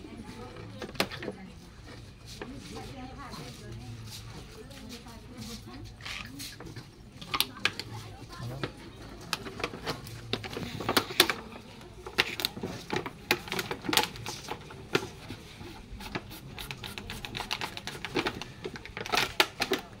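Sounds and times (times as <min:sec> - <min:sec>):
plastic container clicking and crackling: 0:07.2 - 0:15.1, 0:16.6 - 0:20.0.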